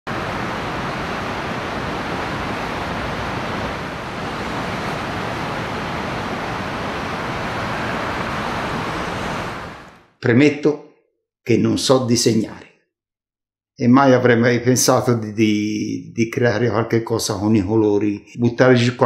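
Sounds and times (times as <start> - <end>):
river rushing over weir: 0.1 - 10.0.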